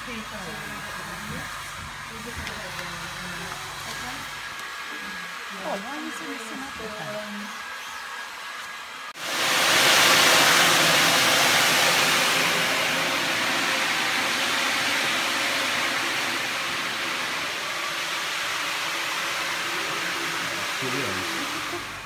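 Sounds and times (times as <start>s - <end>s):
loud rush of blown air: 9.2s - 22.0s.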